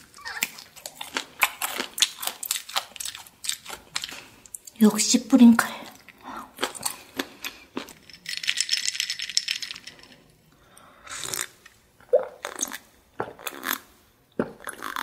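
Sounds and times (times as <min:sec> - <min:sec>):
ice cubes clinking in a glass: 0:08.0 - 0:10.2.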